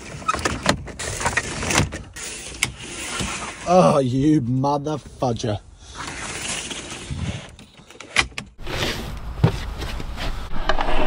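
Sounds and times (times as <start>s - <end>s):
window blind sliding rasp: 0.0s - 3.7s, 6.0s - 7.4s.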